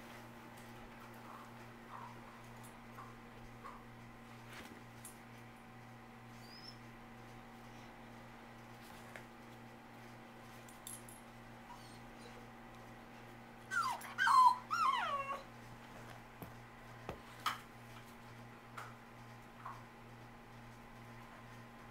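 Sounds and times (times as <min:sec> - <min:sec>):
puppy whining and yipping: 0:06.3 - 0:06.9, 0:11.6 - 0:12.5, 0:13.7 - 0:15.5.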